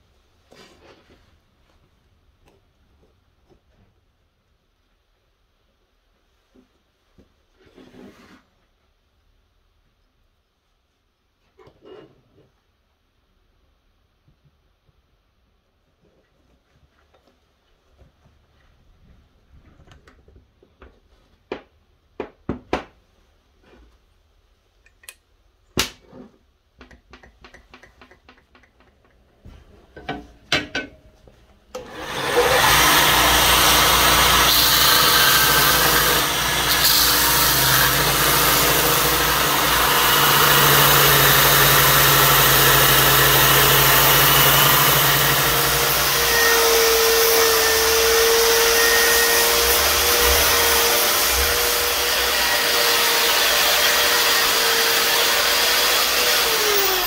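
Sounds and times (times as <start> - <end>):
belt grinder sanding wood: 31.8 - 57.0.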